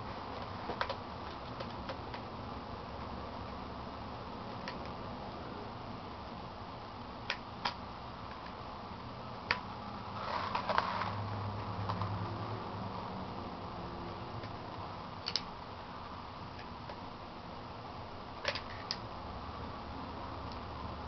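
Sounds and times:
machine rattling and scraping: 10.2 - 11.2.

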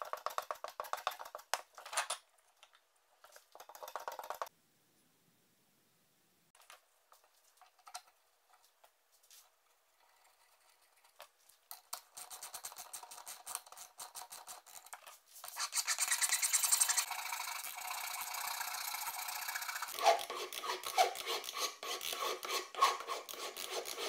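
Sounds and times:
hand file rasping: 19.7 - 24.0.

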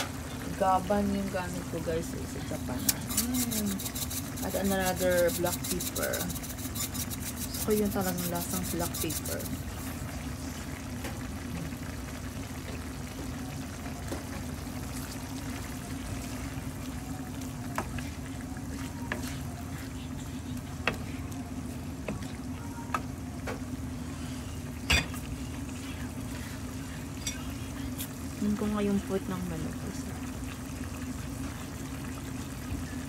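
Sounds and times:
food simmering in a pan: 0.0 - 33.0.

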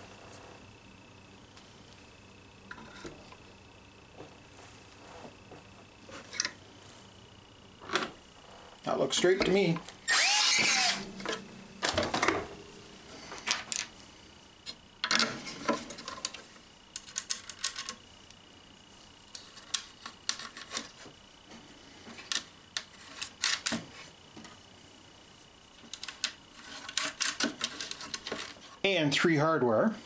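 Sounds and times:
cordless drill: 10.0 - 11.1.

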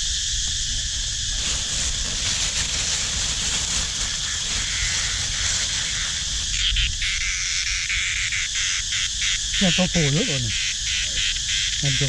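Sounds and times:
insect chorus buzzing: 0.0 - 12.0
cloth net rustling: 1.3 - 6.6.

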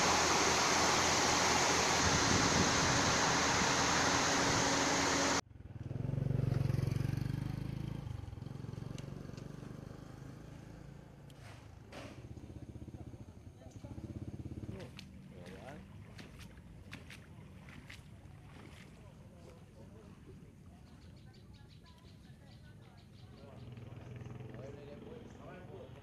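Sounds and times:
heavy downpour hissing: 0.0 - 5.4
outdoor ambience: 0.0 - 26.0.

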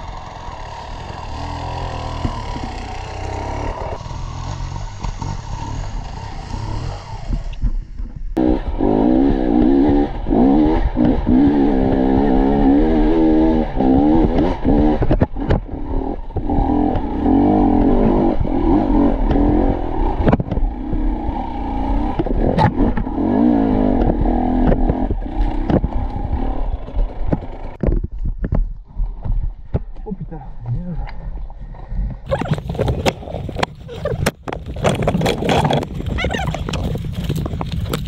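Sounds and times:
dirt bike engine revving: 0.0 - 7.6, 8.4 - 27.8
bike knocking over rocks: 32.4 - 38.0.

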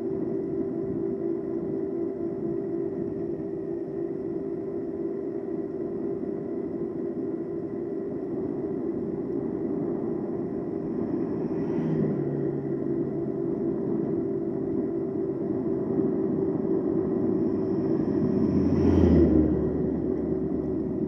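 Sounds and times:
wind and road noise: 0.0 - 21.0
vehicle passing close: 17.1 - 21.0.

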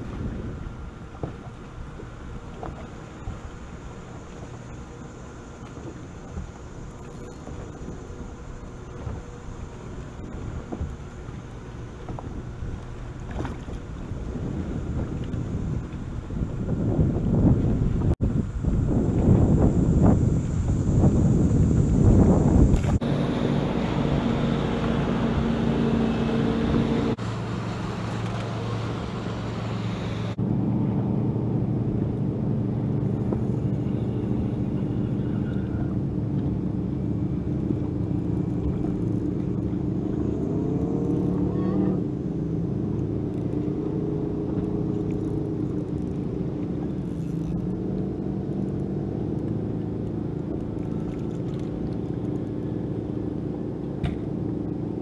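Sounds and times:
boat motor humming: 0.0 - 55.0
wind buffeting microphone: 0.0 - 55.0.

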